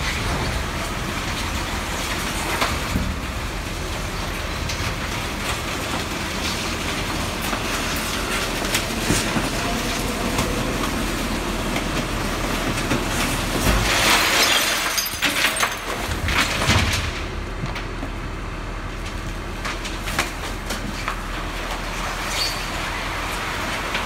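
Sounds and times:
garbage truck machinery running: 0.0 - 24.0
crash of rubbish and breaking glass: 12.6 - 17.4.

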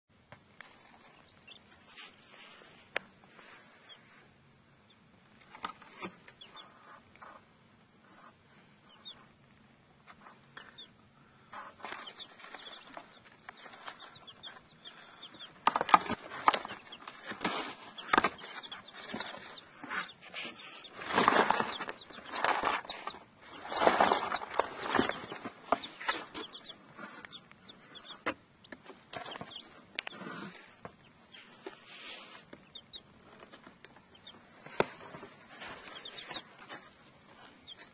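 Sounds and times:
chicks peeping: 0.4 - 37.9
scuffing and rustling: 15.7 - 27.2.

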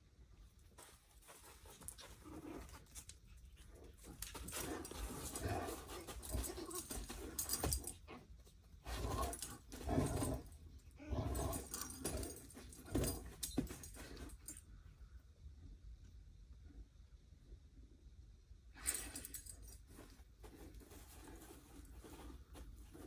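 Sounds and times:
dogs playing roughly: 0.8 - 14.6.

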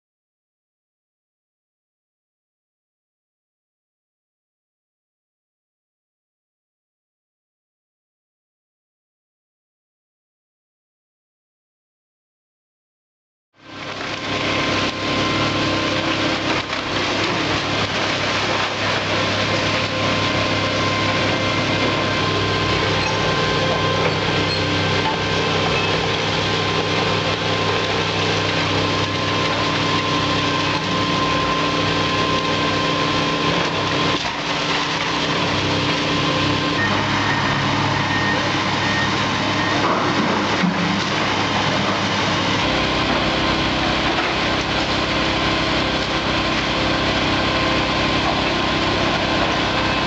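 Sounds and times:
excavator diesel engine running: 13.6 - 50.0
wood cracking and debris falling: 13.8 - 36.7.

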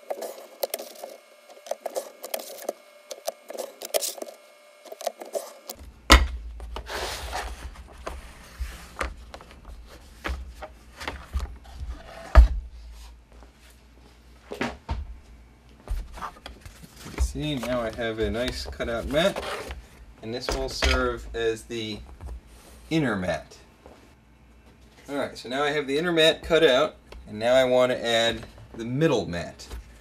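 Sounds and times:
board rustling: 0.0 - 5.8, 6.6 - 13.8, 15.8 - 21.3.

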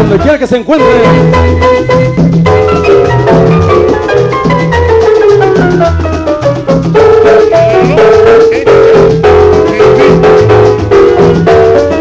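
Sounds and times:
instrumental latin dance music: 0.0 - 12.0.

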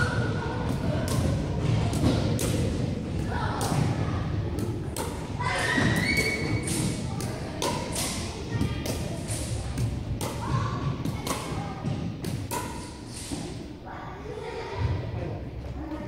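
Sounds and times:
sneaker squeaks: 5.1 - 7.0.

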